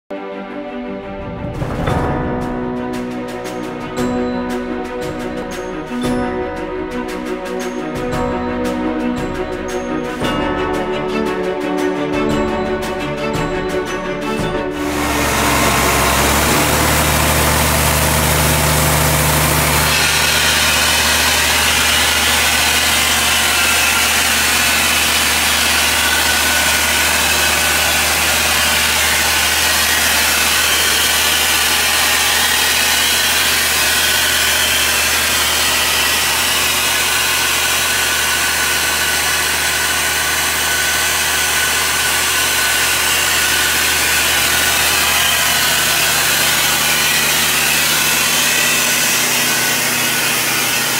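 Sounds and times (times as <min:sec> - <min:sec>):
drill rig engine idling: 0:14.8 - 0:50.9.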